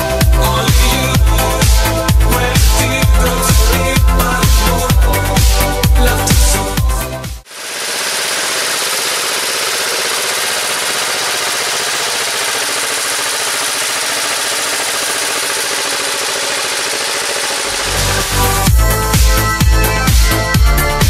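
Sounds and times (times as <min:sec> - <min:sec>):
tractor diesel engine chugging: 0:07.5 - 0:21.0.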